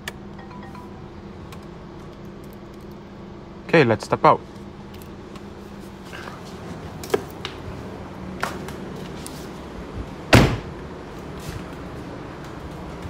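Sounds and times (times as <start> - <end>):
car door slam: 10.3 - 10.7.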